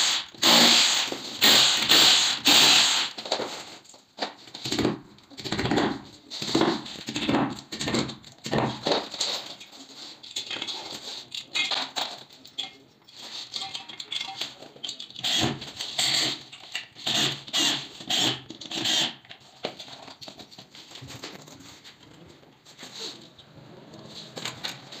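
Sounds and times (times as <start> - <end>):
cordless drill driving screws: 0.0 - 3.2, 17.0 - 19.2.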